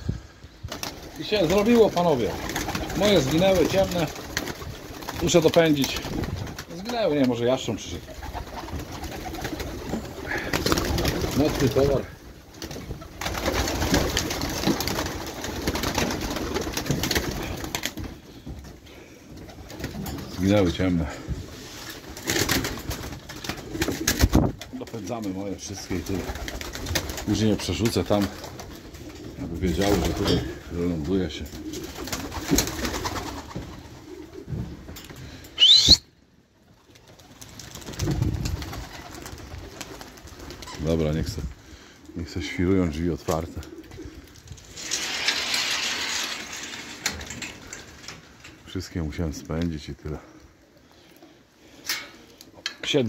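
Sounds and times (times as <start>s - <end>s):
pigeon wings clattering: 0.7s - 18.8s, 19.4s - 20.8s, 21.9s - 35.2s, 36.8s - 41.4s, 43.2s - 48.8s
pigeons cooing: 7.9s - 12.2s, 41.6s - 44.5s.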